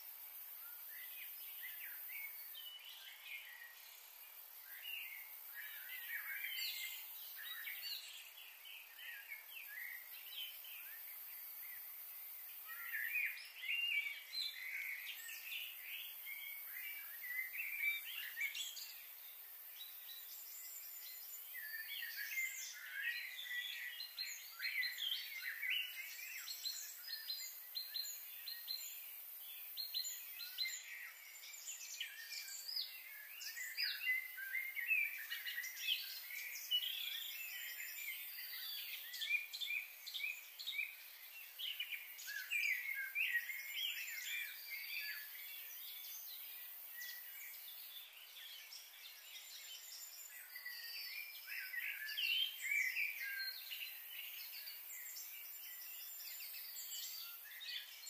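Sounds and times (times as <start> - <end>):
faint steady high hiss: 0.0 - 58.0
birds chirping and singing: 12.6 - 58.0.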